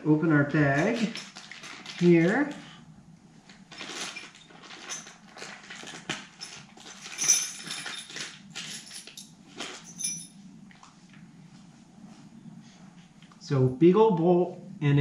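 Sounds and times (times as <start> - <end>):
plastic bag rustling and crinkling: 0.6 - 2.8, 3.4 - 11.1
small metal parts clinking: 0.8 - 2.3, 3.7 - 10.4.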